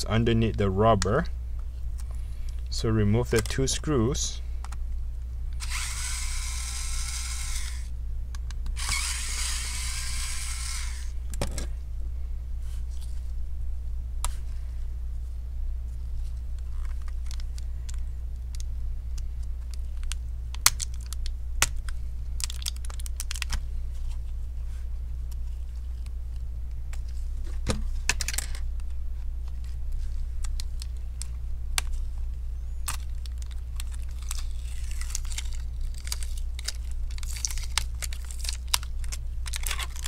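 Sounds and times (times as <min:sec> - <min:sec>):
electric screwdriver whirring: 0:05.6 - 0:07.9, 0:08.8 - 0:11.1.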